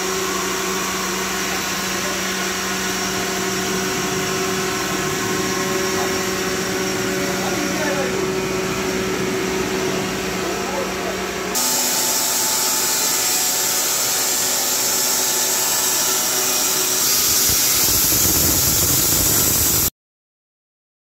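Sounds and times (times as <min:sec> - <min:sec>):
low machine hum: 0:00.0 - 0:14.8
band saw cutting timber: 0:00.0 - 0:19.9.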